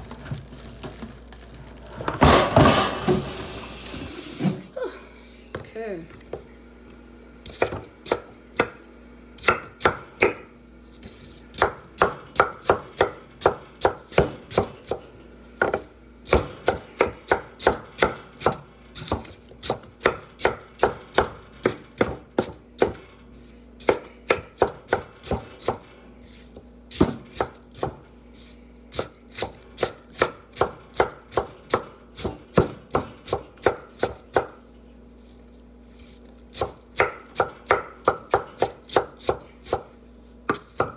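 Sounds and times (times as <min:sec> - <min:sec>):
knife chopping on wooden board: 0:07.5 - 0:08.8, 0:09.4 - 0:10.5, 0:11.5 - 0:15.0, 0:15.6 - 0:23.0, 0:23.8 - 0:25.8, 0:26.9 - 0:28.0, 0:28.9 - 0:34.6, 0:36.5 - 0:39.9, 0:40.5 - 0:40.9.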